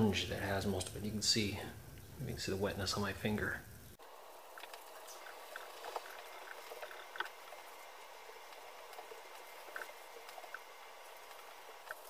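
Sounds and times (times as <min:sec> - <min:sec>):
small crackling ticks: 0:04.0 - 0:12.0.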